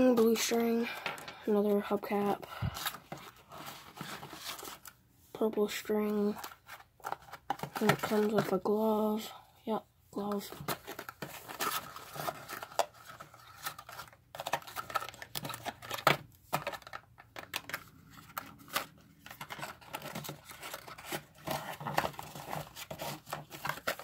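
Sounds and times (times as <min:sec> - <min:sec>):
paperboard box being handled: 0:06.4 - 0:08.7, 0:10.3 - 0:24.0.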